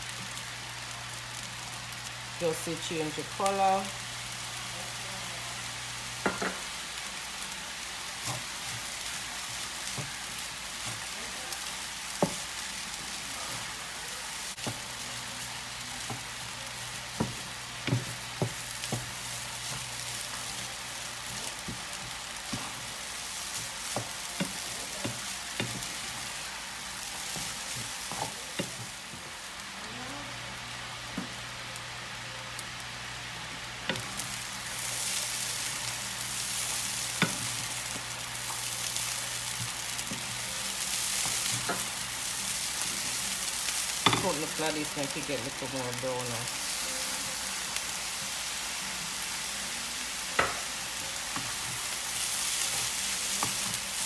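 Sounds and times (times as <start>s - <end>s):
rice sizzling in a frying pan: 0.0s - 54.0s
spoon knocking on pan: 6.2s - 6.7s, 50.4s - 50.6s.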